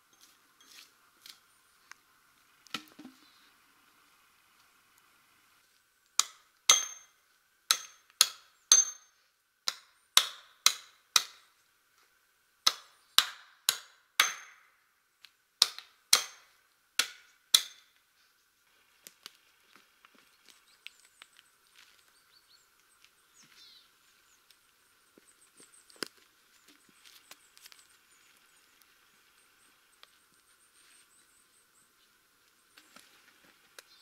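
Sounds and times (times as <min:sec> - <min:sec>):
hammer driving wooden stake: 0:06.2 - 0:11.5, 0:12.6 - 0:14.6, 0:15.6 - 0:17.9.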